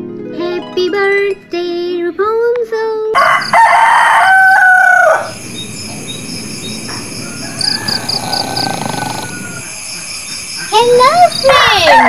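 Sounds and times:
rooster crowing: 0:03.2 - 0:12.0
bird chirps: 0:05.2 - 0:12.0.

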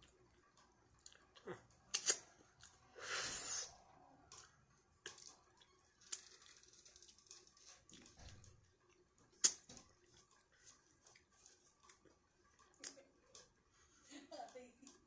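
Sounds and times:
wet chewing and lip smacks: 0:01.0 - 0:02.9, 0:04.3 - 0:08.1, 0:08.9 - 0:13.5.

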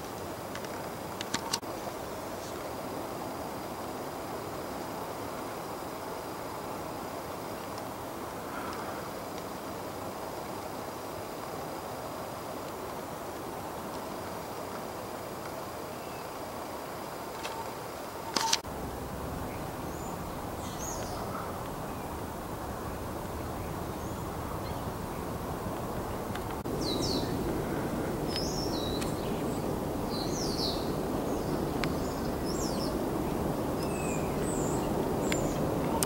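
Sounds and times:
sharp click: 0:18.3 - 0:18.6
outdoor background rumble: 0:18.6 - 0:36.0
high bird calls and chirps: 0:19.4 - 0:36.0.

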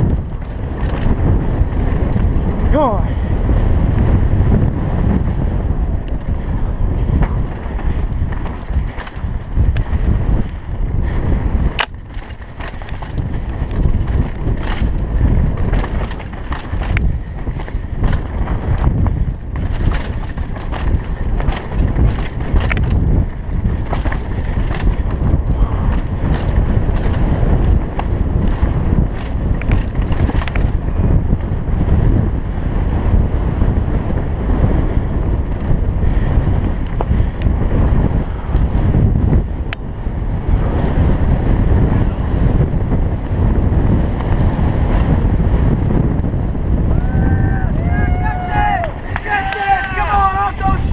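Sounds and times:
tyres rumbling over dirt and rocks: 0:00.0 - 0:32.1
bike rattling over rough ground: 0:00.0 - 0:50.9
wind noise on microphone: 0:00.0 - 0:50.9.

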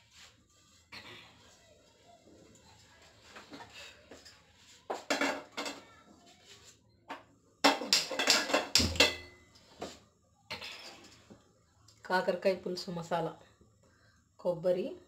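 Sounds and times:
metal pan clanking and scraping: 0:07.7 - 0:09.3.

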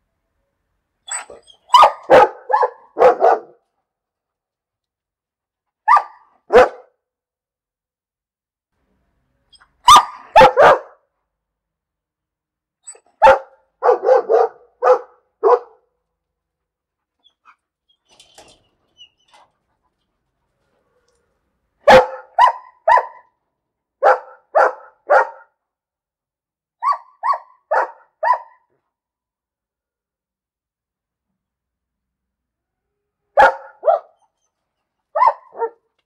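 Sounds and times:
dog barking: 0:01.1 - 0:03.6, 0:05.8 - 0:07.0, 0:09.8 - 0:11.1, 0:13.1 - 0:15.9, 0:21.8 - 0:23.4, 0:24.0 - 0:25.6, 0:26.8 - 0:28.7, 0:33.4 - 0:34.3, 0:35.1 - 0:35.9.

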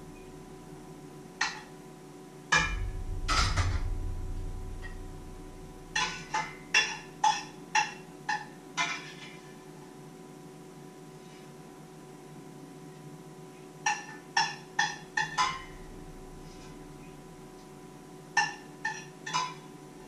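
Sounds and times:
low rumble: 0:02.6 - 0:06.7, 0:15.6 - 0:18.0.

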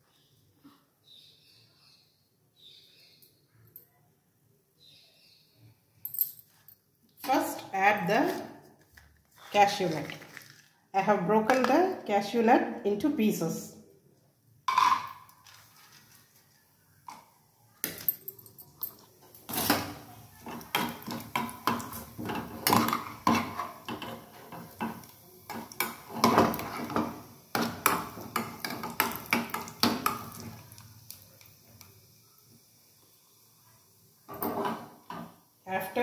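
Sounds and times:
spoon clinking and scraping a pan: 0:14.7 - 0:15.4, 0:18.1 - 0:30.6, 0:34.3 - 0:35.4
nuts frying in fat: 0:19.0 - 0:36.0.

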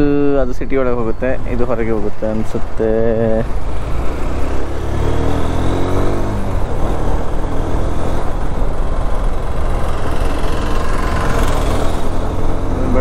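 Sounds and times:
motorcycle engine running: 0:03.4 - 0:13.0.

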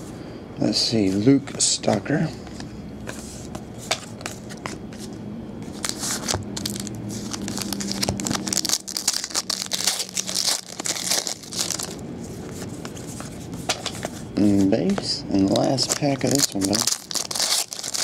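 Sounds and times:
cards rustling: 0:01.0 - 0:18.0
foil pack crinkling and tearing: 0:05.8 - 0:12.0, 0:15.4 - 0:18.0.

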